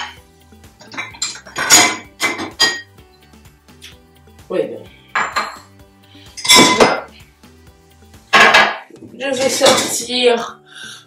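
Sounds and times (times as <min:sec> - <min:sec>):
plates clinking and clattering: 0:00.0 - 0:00.2, 0:00.8 - 0:03.0, 0:05.1 - 0:05.7, 0:06.4 - 0:07.1, 0:08.3 - 0:10.0.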